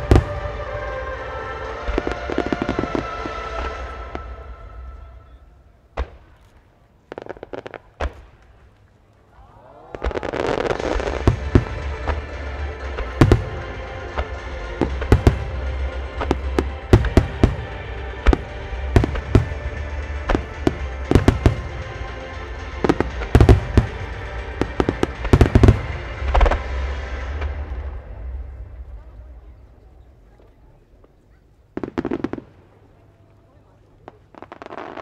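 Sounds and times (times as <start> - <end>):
fireworks bursting: 0.0 - 9.0, 9.8 - 29.8, 30.4 - 33.3, 33.9 - 35.0
music over loudspeakers: 10.8 - 27.9.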